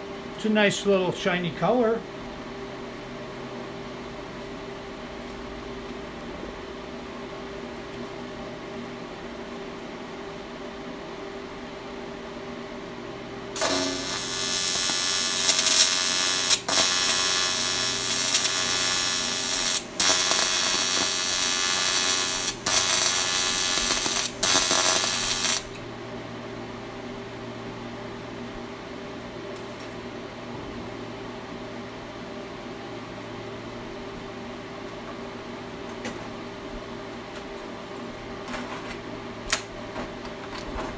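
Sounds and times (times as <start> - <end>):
welder humming at idle: 13.4 - 25.9
welding arc crackling: 13.6 - 25.8.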